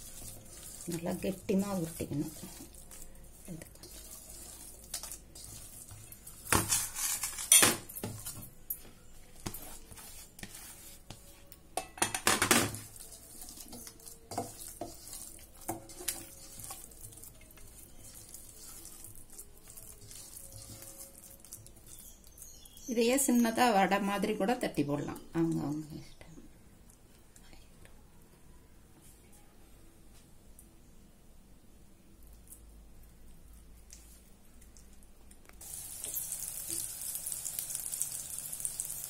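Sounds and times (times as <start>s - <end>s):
bowl and plate clattering on counter: 6.5s - 8.2s, 11.8s - 12.8s.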